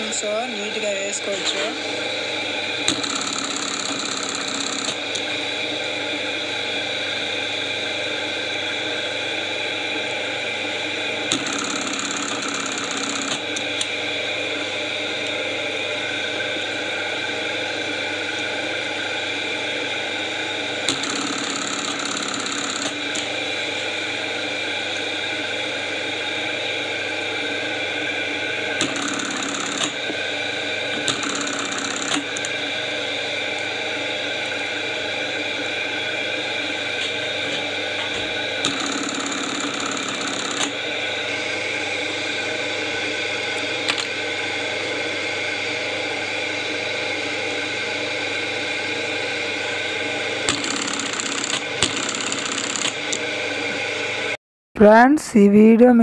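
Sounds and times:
sewing machine motor humming: 0:01.2 - 0:05.6, 0:11.3 - 0:14.0, 0:20.8 - 0:24.1, 0:28.6 - 0:33.0, 0:36.6 - 0:41.4, 0:50.4 - 0:53.3
sewing machine stitching: 0:02.9 - 0:05.2, 0:11.3 - 0:13.6, 0:20.9 - 0:23.3, 0:28.8 - 0:30.0, 0:31.0 - 0:32.5, 0:38.6 - 0:40.8, 0:50.5 - 0:53.2.

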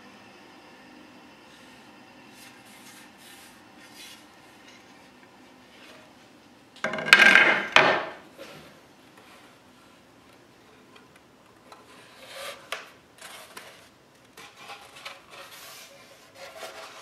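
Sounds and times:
wood scraping on wood: 0:11.7 - 0:17.0.

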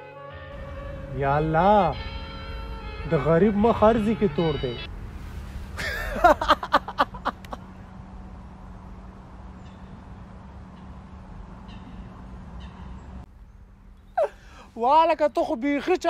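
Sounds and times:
low hum: 0:04.6 - 0:14.6.

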